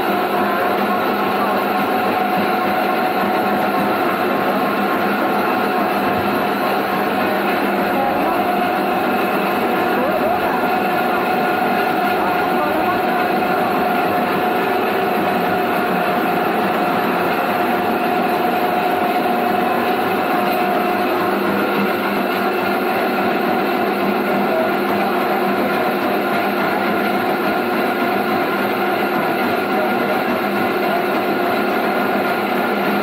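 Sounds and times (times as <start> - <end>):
pulping machine humming and whining: 0.0 - 33.0.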